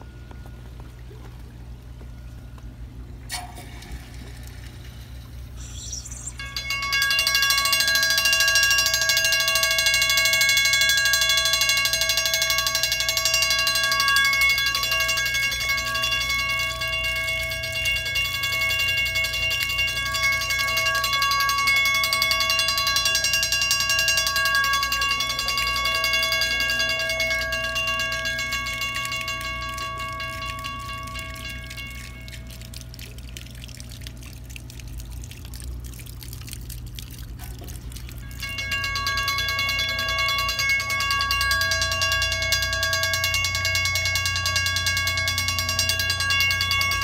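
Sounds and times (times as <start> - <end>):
alarm bell ringing: 4.9 - 32.7, 38.2 - 47.0.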